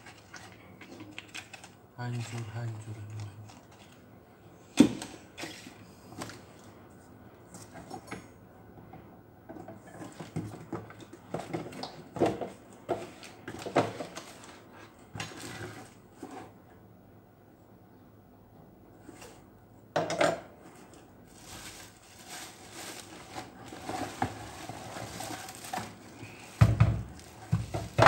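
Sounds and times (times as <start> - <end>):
cardboard boxes rustling and knocking: 21.6 - 28.0.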